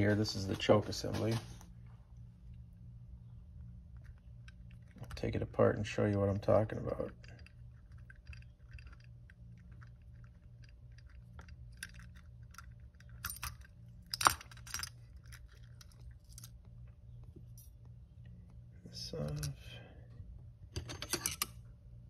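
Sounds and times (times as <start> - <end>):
faint low hum: 0.0 - 22.0
small metal clicks and scraping: 4.0 - 17.7, 20.7 - 21.7.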